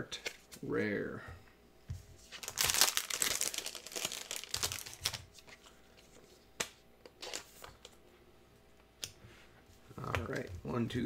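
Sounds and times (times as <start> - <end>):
foil wrapper crinkling: 2.4 - 5.3.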